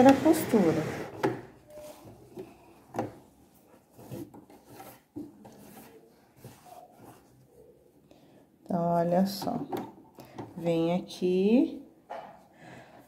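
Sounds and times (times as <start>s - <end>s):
fabric rustling and rubbing: 0.3s - 7.8s.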